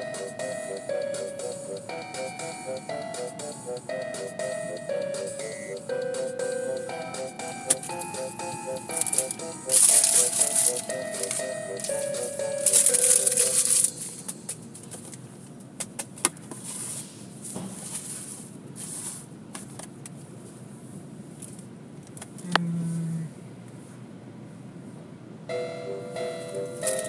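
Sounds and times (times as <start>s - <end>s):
background music: 0.0s - 14.6s, 25.5s - 27.0s.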